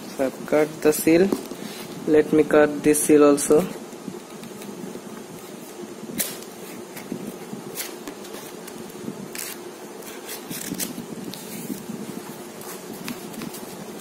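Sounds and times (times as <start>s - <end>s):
steady low hum: 0.0s - 14.0s
knife slitting plastic wrapping: 9.3s - 11.4s.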